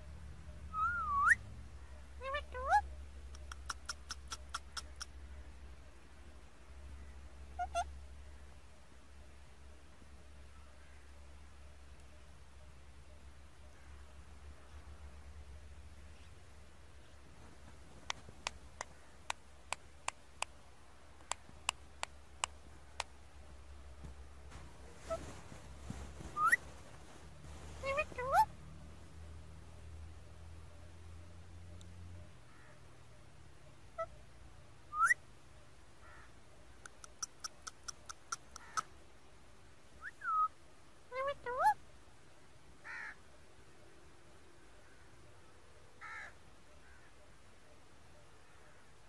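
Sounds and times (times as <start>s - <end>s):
parakeet sharp clicks: 3.3s - 5.2s, 18.0s - 20.6s, 36.8s - 38.9s
parakeet whistling: 26.3s - 26.6s, 34.9s - 35.2s.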